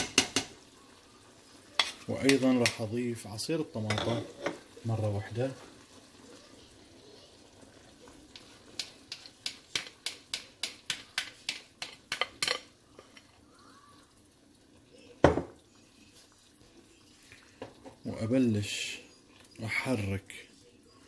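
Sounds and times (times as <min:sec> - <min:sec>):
cookware knock: 0:00.0 - 0:00.5, 0:15.2 - 0:15.6.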